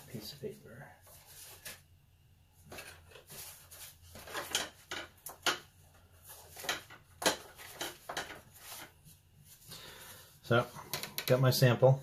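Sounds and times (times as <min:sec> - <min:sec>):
paper rustling: 0:01.0 - 0:01.8, 0:02.7 - 0:04.6, 0:06.1 - 0:10.2.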